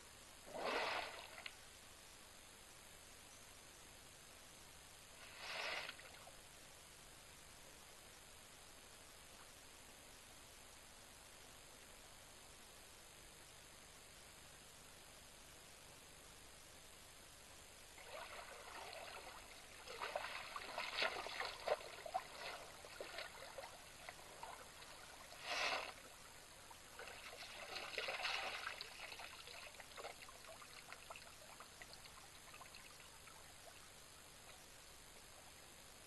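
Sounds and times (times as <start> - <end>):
elephant sloshing in water: 0.5 - 1.4, 18.0 - 26.0, 27.0 - 29.3
loud splash: 0.5 - 1.4.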